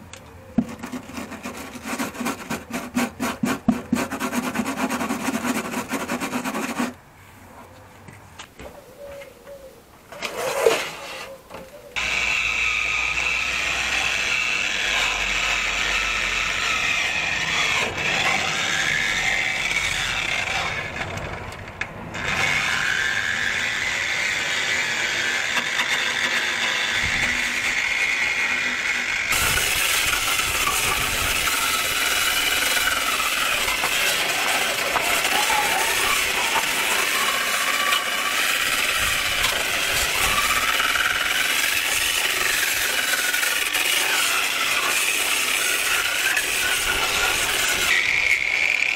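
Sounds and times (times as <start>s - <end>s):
angle grinder grinding rusty steel: 10.2s - 11.4s, 12.0s - 48.9s.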